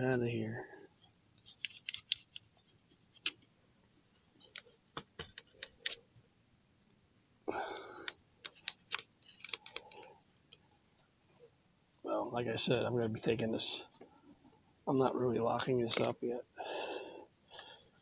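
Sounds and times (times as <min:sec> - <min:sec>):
metallic clicks of small tools: 0:07.8 - 0:10.4, 0:15.9 - 0:16.2.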